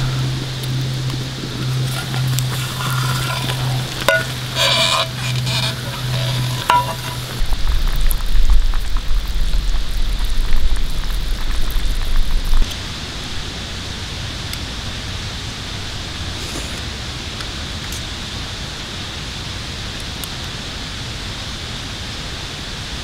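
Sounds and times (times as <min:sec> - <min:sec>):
loud low rumble: 0:00.0 - 0:04.6
stew bubbling and sizzling: 0:00.0 - 0:18.1
metal lid clinking: 0:01.6 - 0:07.4.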